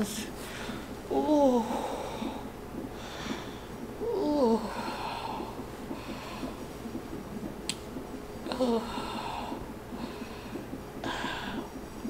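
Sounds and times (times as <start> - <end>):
woman breathing heavily: 0.4 - 6.8, 8.4 - 12.0
woman moaning: 1.1 - 2.3, 4.0 - 5.5, 8.4 - 9.6.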